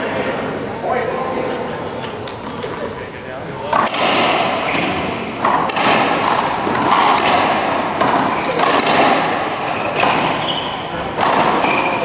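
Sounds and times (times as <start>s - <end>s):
ball cracking off racquets and walls: 3.7s - 12.0s.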